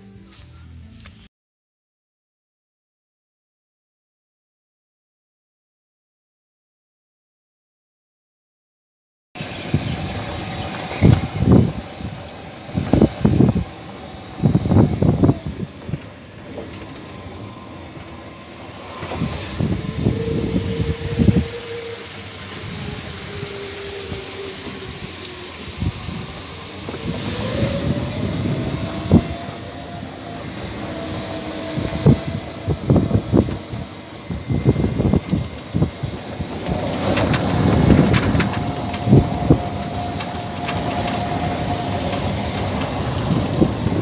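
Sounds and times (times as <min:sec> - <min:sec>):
cart knocks and rattles: 0:36.6 - 0:39.4.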